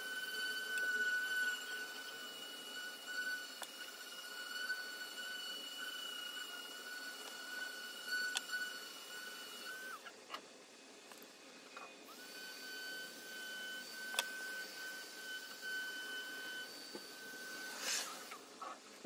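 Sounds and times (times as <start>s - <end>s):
high-pitched whine: 0.0s - 10.0s.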